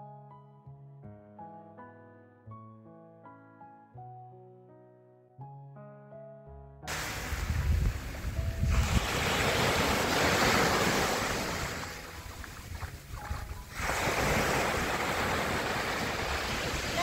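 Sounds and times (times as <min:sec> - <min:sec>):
waves breaking on shingle beach: 0:06.9 - 0:17.0
wind buffeting microphone: 0:06.9 - 0:17.0.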